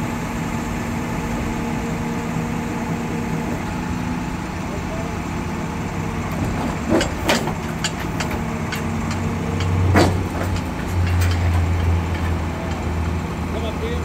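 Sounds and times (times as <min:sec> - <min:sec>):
truck diesel engine running: 0:00.0 - 0:14.0
crane clicks and clunks: 0:06.2 - 0:13.2.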